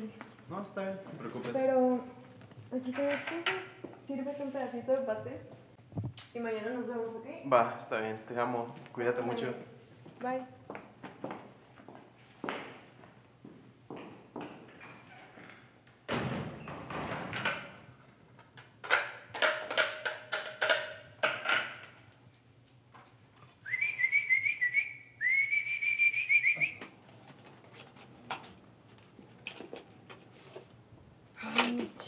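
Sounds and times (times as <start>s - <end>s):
person whistling: 23.6s - 26.8s.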